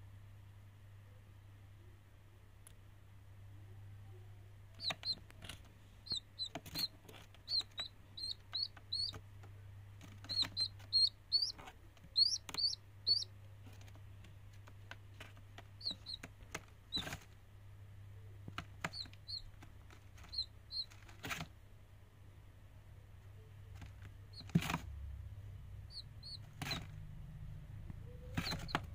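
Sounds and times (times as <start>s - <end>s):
low steady hum: 0.0s - 28.9s
chick peeping: 4.7s - 14.0s, 14.6s - 17.2s, 18.2s - 21.4s, 23.4s - 24.9s, 25.8s - 27.0s, 27.8s - 28.9s.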